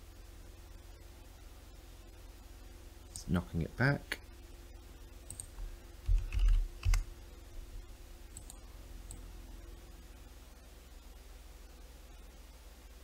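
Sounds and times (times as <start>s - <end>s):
faint steady hum: 0.0s - 13.0s
computer mouse clicks: 5.3s - 7.1s, 8.3s - 9.2s.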